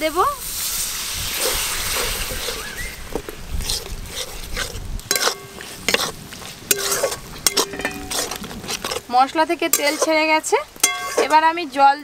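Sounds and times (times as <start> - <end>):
paste sizzling: 0.1 - 12.0
spatula scraping wok: 0.4 - 11.7
spatula clanking against wok: 5.1 - 6.1, 6.7 - 8.6, 10.8 - 11.4.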